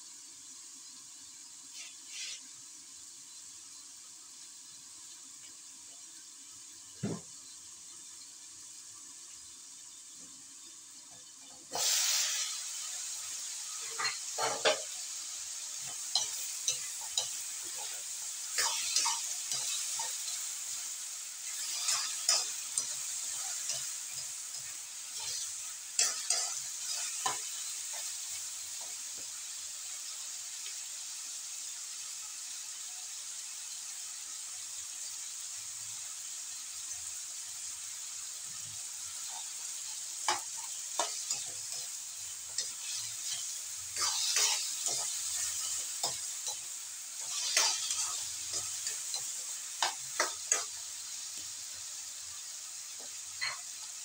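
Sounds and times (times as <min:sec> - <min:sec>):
vegetables sizzling in oil: 0:00.0 - 0:54.0
metal spatula scraping wok: 0:01.8 - 0:02.4, 0:13.8 - 0:15.0, 0:21.5 - 0:28.0, 0:40.2 - 0:50.8.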